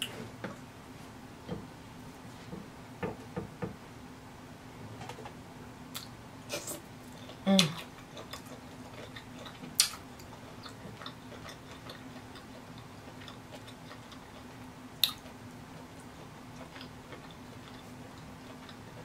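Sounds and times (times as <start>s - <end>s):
low steady hum: 0.0s - 19.0s
eating clicks and smacks: 7.1s - 15.4s.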